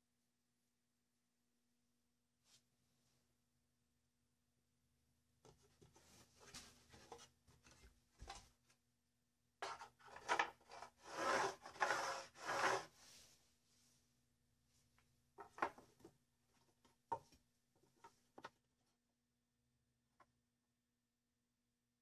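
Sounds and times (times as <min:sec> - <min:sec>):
wood scraping against wood: 0:09.6 - 0:13.2.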